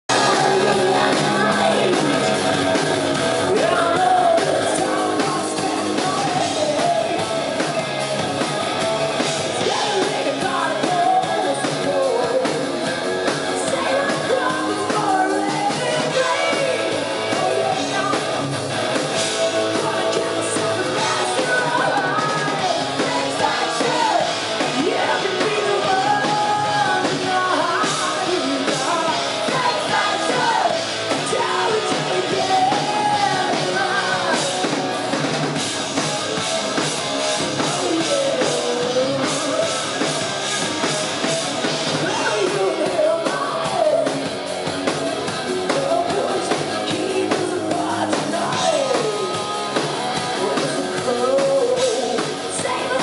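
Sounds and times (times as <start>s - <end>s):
hard rock band playing: 0.0s - 53.0s
woman singing: 0.1s - 2.4s, 3.4s - 7.8s, 9.6s - 18.4s, 19.7s - 34.7s, 37.6s - 40.0s, 42.0s - 44.3s, 45.7s - 53.0s.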